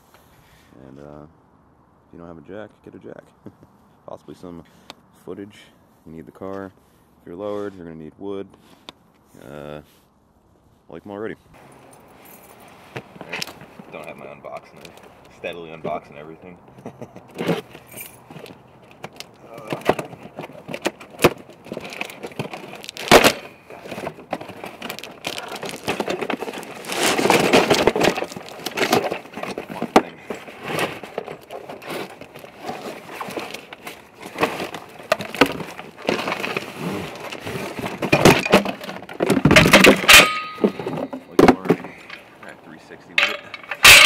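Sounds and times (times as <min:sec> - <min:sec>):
cardboard box crackling and rustling: 0:12.8 - 0:40.0.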